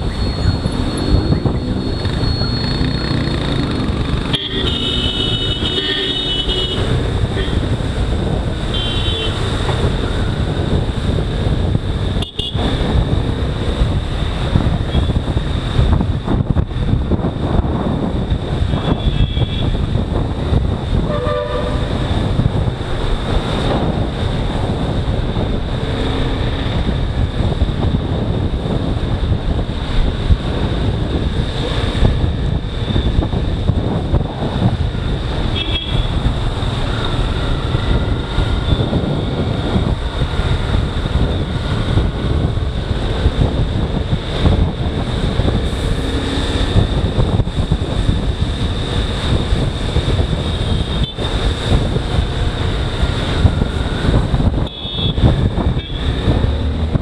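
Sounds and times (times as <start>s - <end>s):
motorcycle engine: 0.0s - 11.0s
wind rush: 0.0s - 57.0s
vehicle horns honking: 4.2s - 7.7s, 8.7s - 9.5s, 12.2s - 12.8s, 18.7s - 19.8s, 21.0s - 22.0s, 35.5s - 36.2s, 50.6s - 51.3s, 54.6s - 56.3s.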